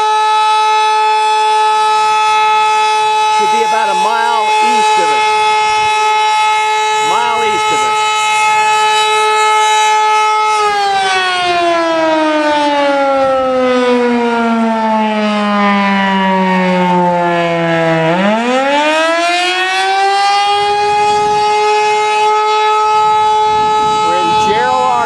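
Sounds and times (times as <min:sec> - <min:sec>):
warning siren winding: 0:00.0 - 0:25.0.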